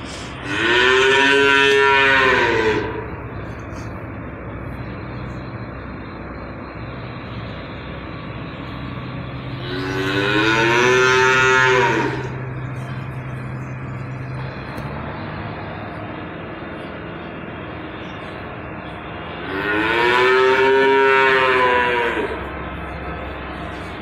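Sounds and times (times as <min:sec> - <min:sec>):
steady low hum: 0:00.0 - 0:24.0
calf mooing: 0:00.4 - 0:03.1, 0:09.6 - 0:12.6, 0:19.4 - 0:22.5.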